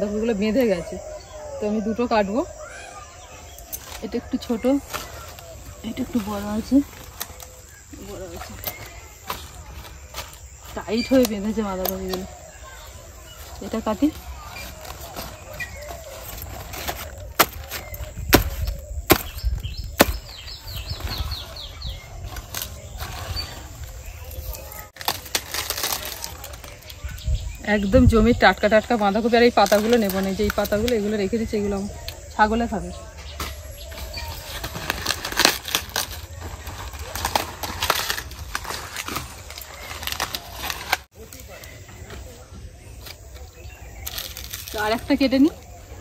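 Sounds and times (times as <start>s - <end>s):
bird chirping: 0.0s - 24.9s
cabbage leaves crackling and snapping: 3.3s - 31.3s, 33.3s - 42.2s, 42.9s - 46.0s
sickle chopping cabbage stalk: 14.3s - 21.3s, 24.2s - 26.8s, 44.0s - 45.0s.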